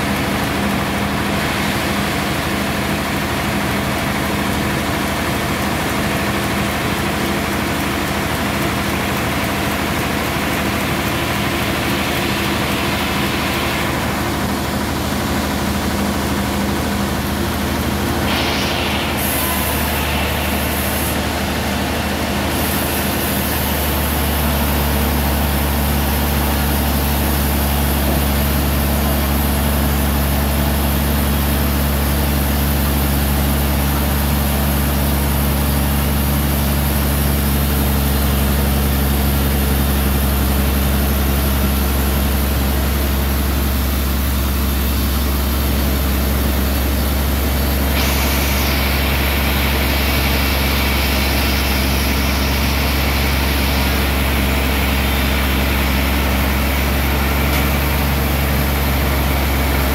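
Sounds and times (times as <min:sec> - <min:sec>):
sawmill drive droning: 0:00.0 - 0:59.9
higher sawing noise: 0:10.1 - 0:30.9, 0:45.9 - 0:59.9.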